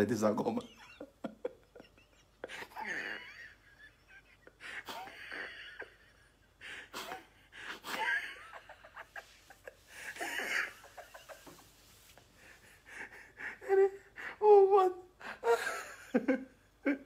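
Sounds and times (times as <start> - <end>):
man laughing into hands: 0.6 - 11.7.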